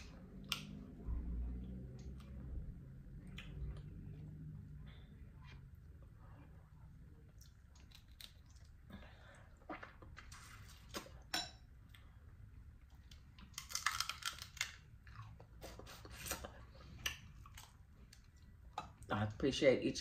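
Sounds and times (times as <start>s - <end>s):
crab shell cracking: 13.5s - 14.9s.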